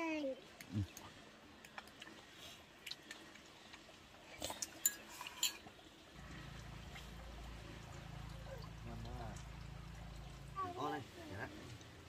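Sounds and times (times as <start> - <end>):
low background rumble: 6.2 - 12.0.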